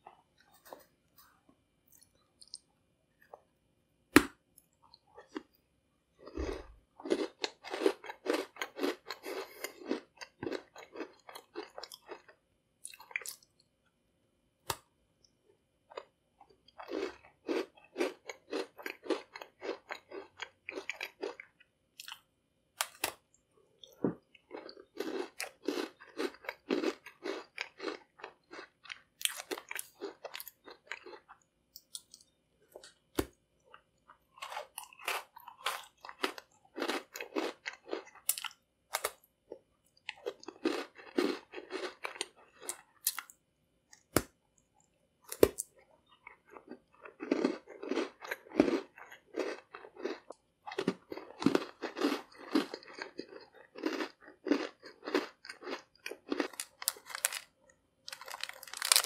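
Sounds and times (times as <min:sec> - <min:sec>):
person chewing cookie: 0:00.0 - 0:03.5, 0:04.2 - 0:05.6, 0:06.2 - 0:13.6, 0:15.8 - 0:43.4, 0:44.0 - 0:59.0.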